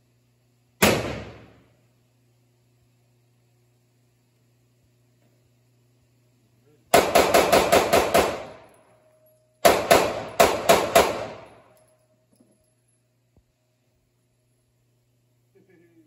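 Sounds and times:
pistol shots echoing: 0:00.8 - 0:01.6, 0:06.9 - 0:08.7, 0:09.6 - 0:11.6.

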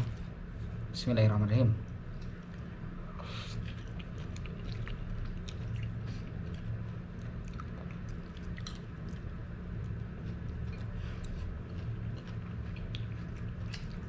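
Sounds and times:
steady low hum: 0:00.0 - 0:14.0
man chewing and slurping: 0:03.2 - 0:14.0.

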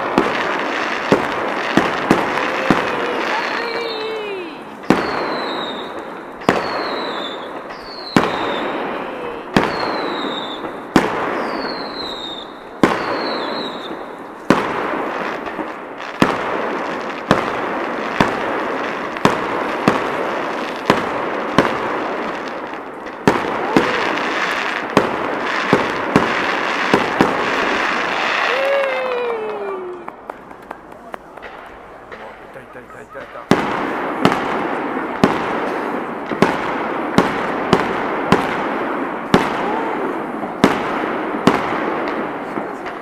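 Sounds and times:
firework shells bursting: 0:00.0 - 0:28.6, 0:29.5 - 0:43.0
firework crackle: 0:00.0 - 0:43.0
falling firework whistle: 0:00.9 - 0:14.2, 0:23.3 - 0:24.8, 0:26.8 - 0:30.1.

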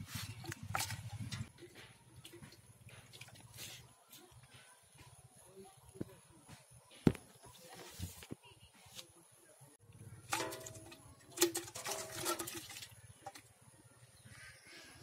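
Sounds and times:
metal pail knocking: 0:10.3 - 0:13.4.

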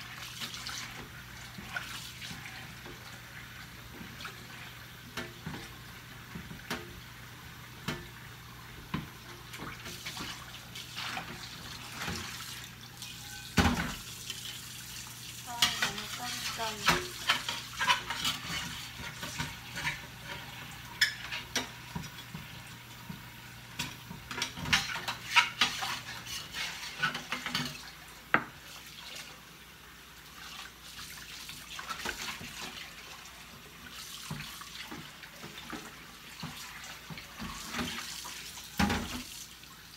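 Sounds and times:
running water: 0:00.0 - 0:39.9
dishes clinking in sink: 0:13.0 - 0:14.1, 0:15.5 - 0:22.5, 0:23.8 - 0:28.6, 0:38.8 - 0:39.3.

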